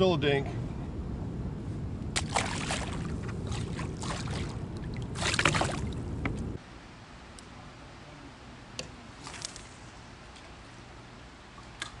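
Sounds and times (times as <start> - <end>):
steady low rumble: 0.0 - 7.0
water splashing: 2.2 - 6.3.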